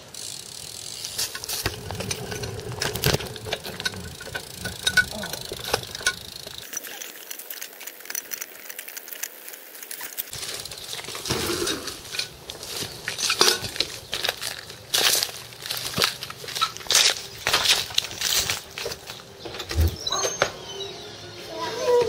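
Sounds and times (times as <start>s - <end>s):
bike rattling and clicking: 0.0s - 19.9s.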